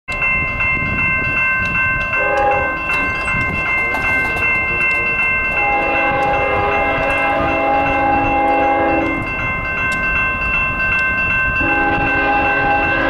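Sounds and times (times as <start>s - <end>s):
railroad crossing bell ringing: 0.1s - 13.0s
locomotive horn blast: 2.2s - 2.8s, 4.7s - 9.3s, 11.6s - 13.0s.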